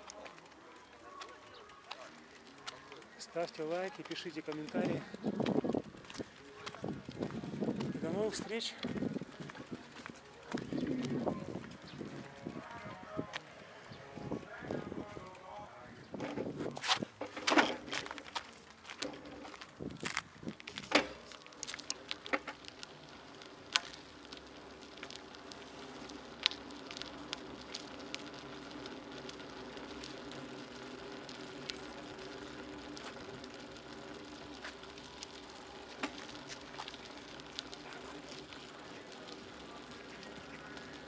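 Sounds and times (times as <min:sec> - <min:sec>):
bicycle clicks and rattles: 0:00.0 - 0:41.0
bicycle tyre and drivetrain hum: 0:00.0 - 0:41.0.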